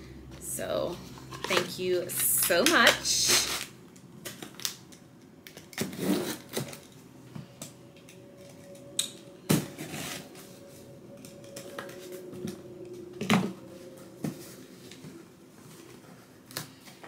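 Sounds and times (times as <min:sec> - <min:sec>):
packaging clicks and rustles: 0:03.3 - 0:07.0.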